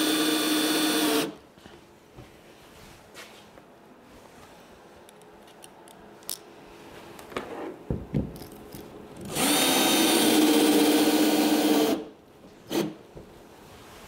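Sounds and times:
cordless drill driving a screw: 0.0 - 1.4, 9.3 - 12.1, 12.7 - 13.0.

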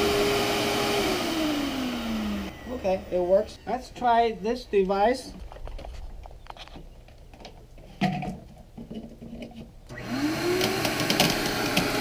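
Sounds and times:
vacuum cleaner running: 0.0 - 3.9, 9.9 - 12.0.

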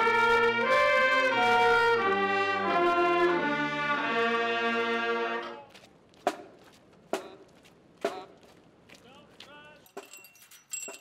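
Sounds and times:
brass band playing chords: 0.0 - 5.7.

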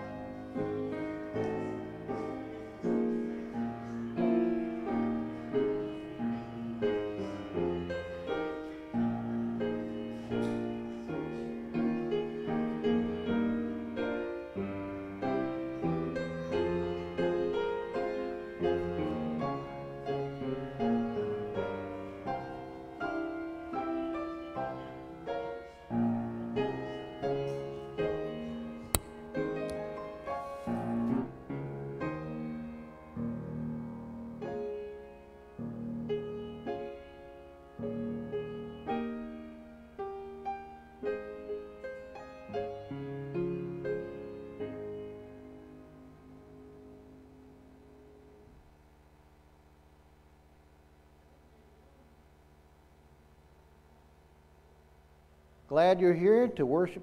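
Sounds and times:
grand piano playing chords: 0.0 - 57.0
sharp click: 29.0 - 29.8.

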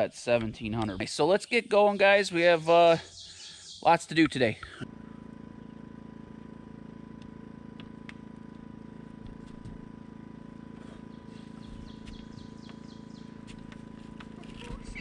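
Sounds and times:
steady low hum: 0.0 - 15.0
songbird chirping: 1.2 - 4.1, 11.1 - 13.4.

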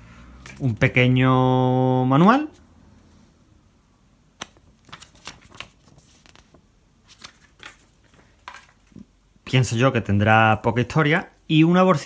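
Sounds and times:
paper and card rustling: 4.4 - 9.1.

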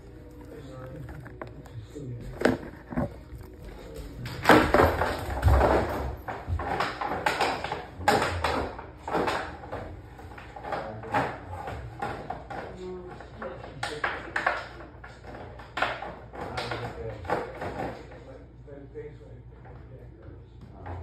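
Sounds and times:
rattling and scraping: 0.0 - 7.8
plastic jug knocking on wooden floor: 2.3 - 3.2.

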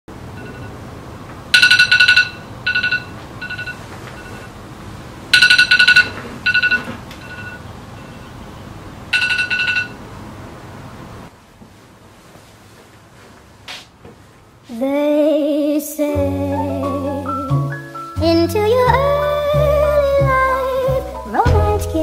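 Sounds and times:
phone alarm beeping: 0.4 - 0.8, 1.6 - 4.5, 5.4 - 8.4, 9.1 - 10.0.

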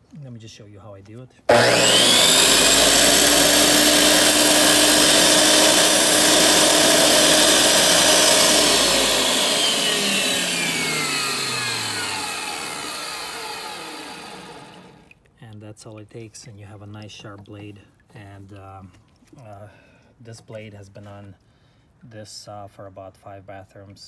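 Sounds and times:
dressing stone grinding on blade: 1.5 - 15.0
tile saw motor and blade whine: 1.5 - 15.1.

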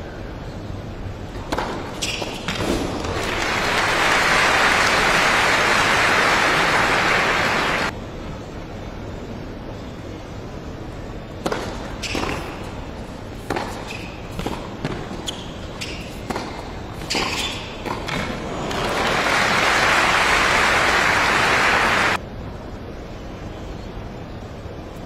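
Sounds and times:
tennis ball bouncing: 1.3 - 3.9, 11.4 - 12.8, 13.4 - 18.9
racket striking tennis ball: 1.4 - 3.4, 11.4 - 12.8, 13.4 - 18.9
shoe squeaks on hard court: 1.9 - 2.6, 12.0 - 12.6, 13.7 - 18.0
crowd applauding: 3.1 - 7.9, 18.7 - 22.2.

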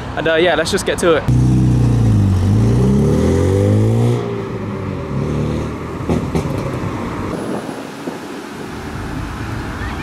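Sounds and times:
car engines and traffic rumble: 0.0 - 10.0.

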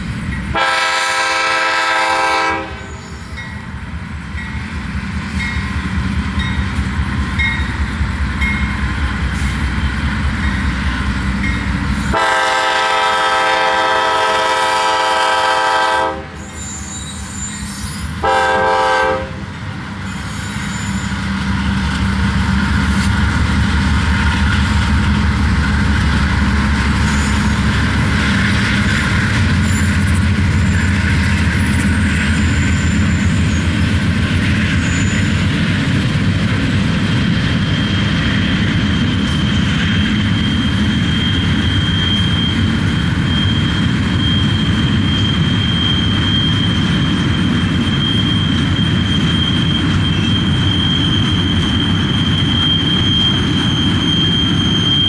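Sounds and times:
diesel locomotive engines: 0.0 - 55.0
train wheels on rails: 0.0 - 55.0
locomotive horn blasts: 0.5 - 3.0, 12.1 - 16.4, 18.2 - 19.5.

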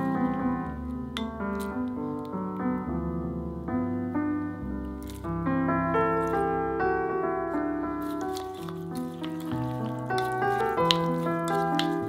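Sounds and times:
instrumental music: 0.0 - 12.0
spoon stirring sauce in glass bowl: 5.0 - 5.2, 8.0 - 12.0.

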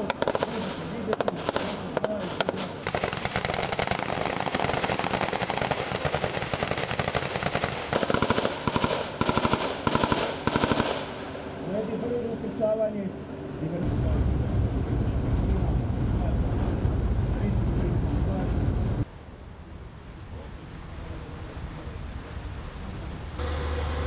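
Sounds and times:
machine guns firing bursts: 0.0 - 11.2.

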